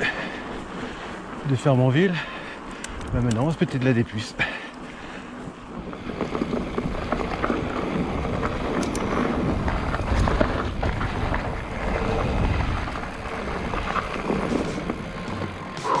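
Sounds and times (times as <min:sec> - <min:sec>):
bike rattling over bumps: 0:00.0 - 0:16.0
tyres rolling over dirt: 0:00.0 - 0:16.0
wind on microphone: 0:05.8 - 0:15.0.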